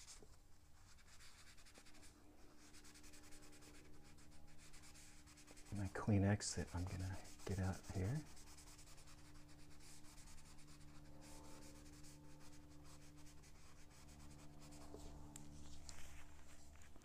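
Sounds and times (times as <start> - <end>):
tissue scuffing on paper: 14.9 - 17.0.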